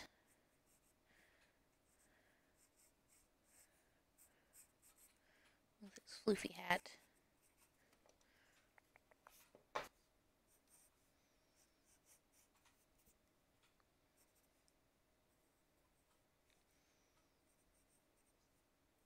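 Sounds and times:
pencil scratching on paper: 0.0s - 1.0s, 1.7s - 5.2s, 6.7s - 7.9s, 8.9s - 13.2s, 14.2s - 14.6s, 17.4s - 18.7s.

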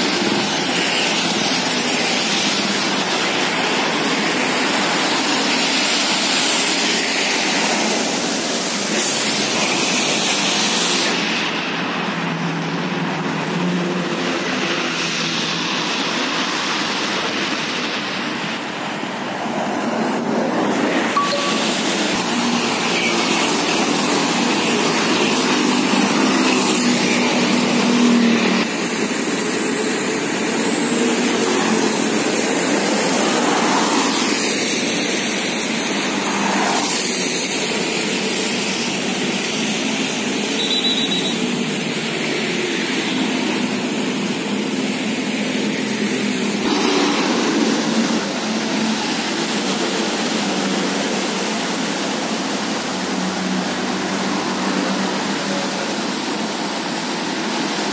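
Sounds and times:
tyres hissing on wet road: 0.0s - 57.9s
vehicles driving past: 40.9s - 57.9s.

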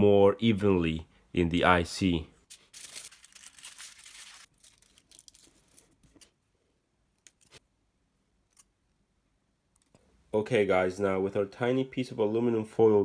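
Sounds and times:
aluminium foil rustling and tearing: 2.5s - 6.3s.

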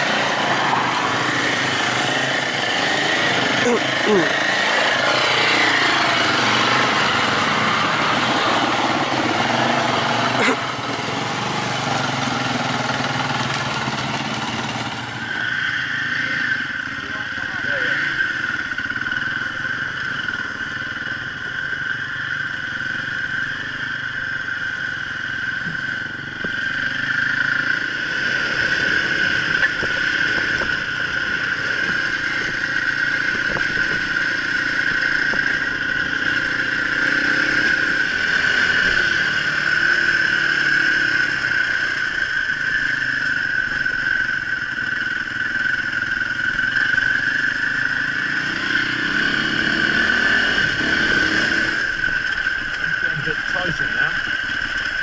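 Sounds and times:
high whine: 0.0s - 55.0s
motorcycle engine revving: 0.0s - 55.0s.

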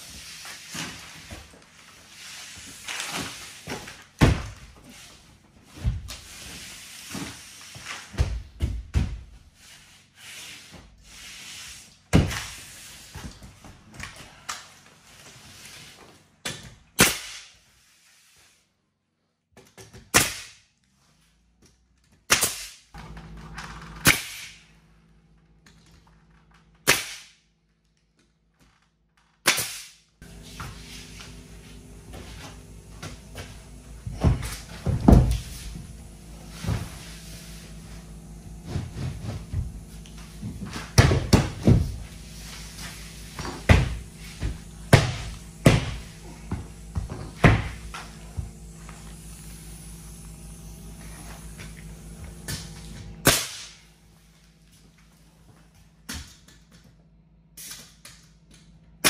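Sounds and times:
nail gun bangs: 29.4s - 30.0s, 53.2s - 53.8s
steady low hum: 30.0s - 59.0s.

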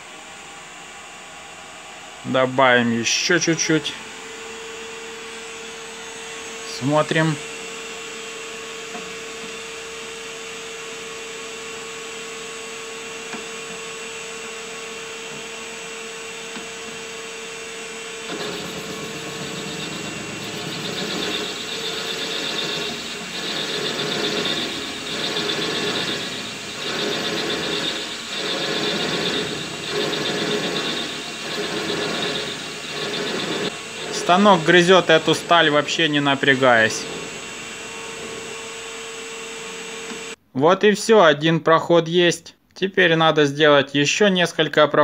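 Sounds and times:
lathe humming: 16.4s - 40.4s
lathe tool scraping steel: 18.3s - 40.4s.

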